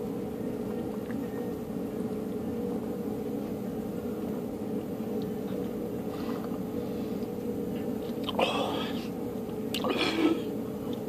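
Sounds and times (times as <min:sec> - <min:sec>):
machine hum with held tone: 0:00.0 - 0:11.0
faint gulps: 0:09.7 - 0:10.5.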